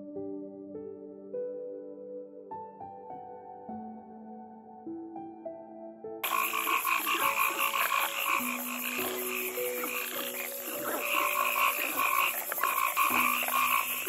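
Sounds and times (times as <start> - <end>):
frogs croaking: 6.2 - 14.0.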